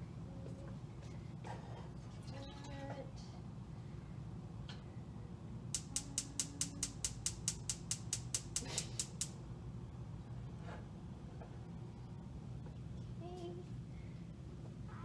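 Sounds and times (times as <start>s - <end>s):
gas burner igniter clicking: 5.8s - 9.4s.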